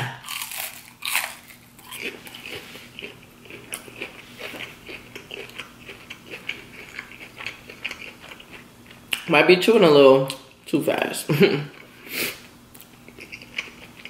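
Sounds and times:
crunchy chewing of fried food: 0:00.2 - 0:09.2, 0:12.7 - 0:14.0.

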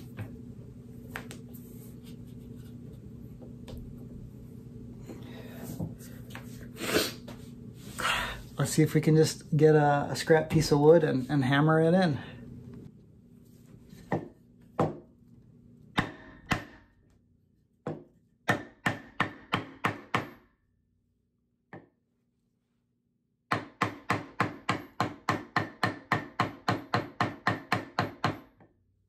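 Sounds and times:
hammer striking wood block: 0:16.0 - 0:17.0, 0:17.9 - 0:20.5, 0:23.5 - 0:28.7.

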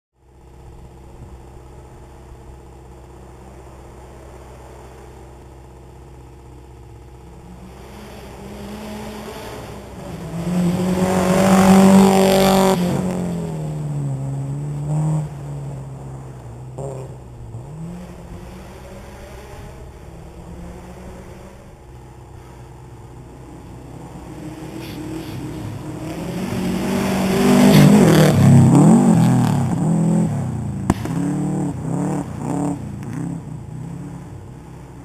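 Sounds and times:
rally car engine passing: 0:00.3 - 0:35.0.

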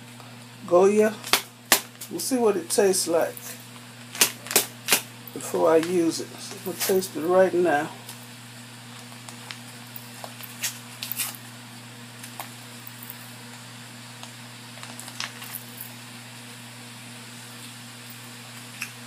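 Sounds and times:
steady low hum: 0:00.0 - 0:19.0
small crackles and pops: 0:08.9 - 0:12.6, 0:13.5 - 0:15.6.

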